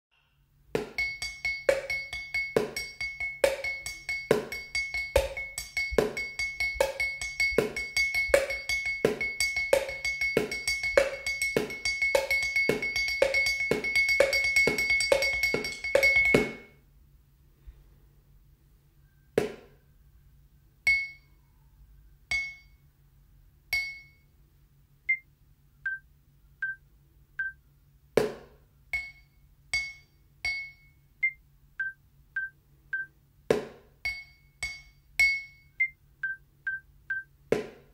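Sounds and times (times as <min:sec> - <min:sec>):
sticks clinking on drinking glass: 0:00.9 - 0:16.7.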